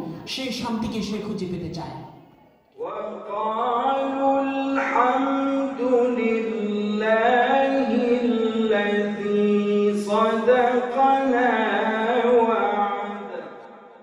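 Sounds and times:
man chanting melodically: 2.8 - 13.6.

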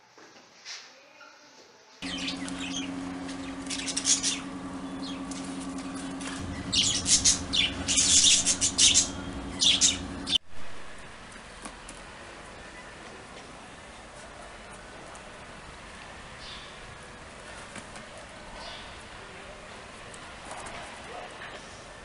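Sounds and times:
animals scuffling: 2.0 - 10.4
steady low hum: 2.0 - 11.5.

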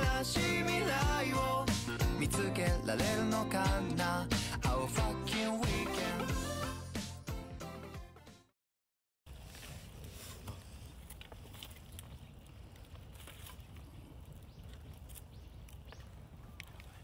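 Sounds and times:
small clicks and rustles: 9.4 - 17.0.

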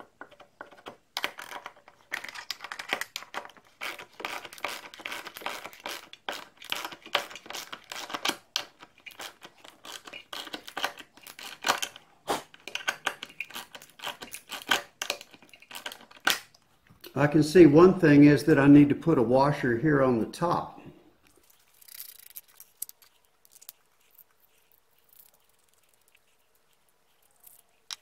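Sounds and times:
metal bolt scraping and clicking on wood: 12.6 - 16.4.

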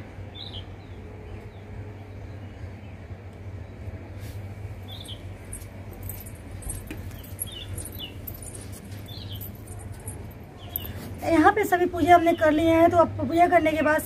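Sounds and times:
steady low hum: 0.0 - 14.0
small birds chirping: 4.8 - 11.2.

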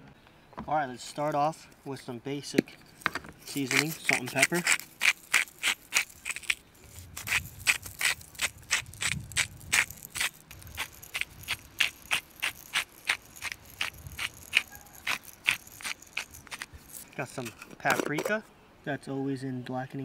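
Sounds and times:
grinders crunching clicks: 3.4 - 18.3.

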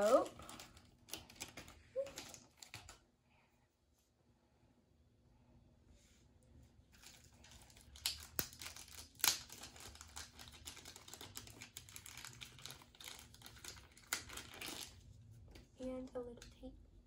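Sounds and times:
plastic packaging crinkling: 0.0 - 3.0, 6.9 - 15.1.

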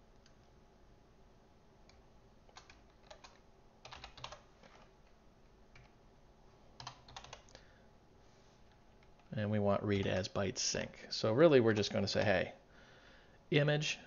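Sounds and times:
typing on computer keyboard: 2.5 - 4.9, 5.7 - 6.0, 6.8 - 7.6.

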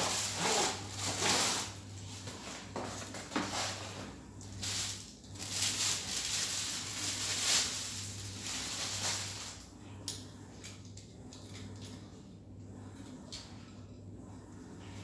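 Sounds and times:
plastic wrapping crinkling: 0.0 - 3.8, 4.5 - 9.6.

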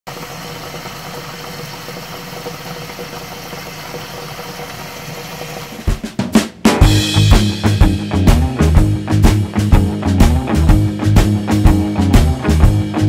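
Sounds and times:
pan of food sizzling: 0.1 - 6.0
drum kit music: 5.6 - 13.0.

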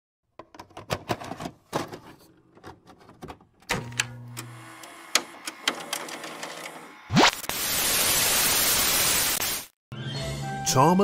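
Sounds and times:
sharp mechanical clicks and knocks: 3.1 - 6.8.

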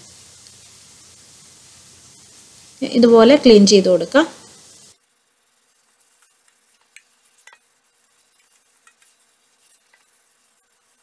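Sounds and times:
sponge scrubbing a steel sink: 5.3 - 11.0.

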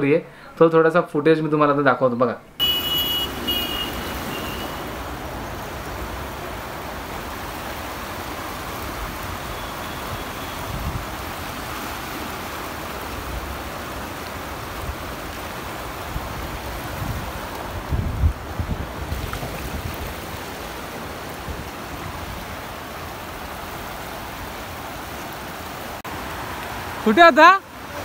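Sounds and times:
river rapids rushing over rocks: 3.0 - 17.9
wind rumble on microphone: 4.8 - 11.9, 13.1 - 24.6.

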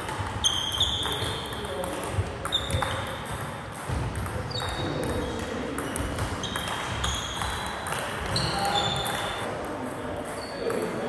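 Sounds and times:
shoe squeaks: 0.4 - 1.6, 2.4 - 3.2, 4.5 - 5.4, 6.4 - 9.4.

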